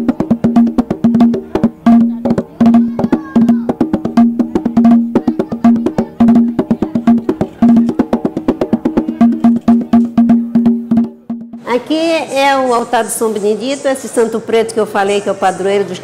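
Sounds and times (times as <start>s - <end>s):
wooden percussion clacking: 0.0s - 12.6s
pitched drums: 0.0s - 15.7s.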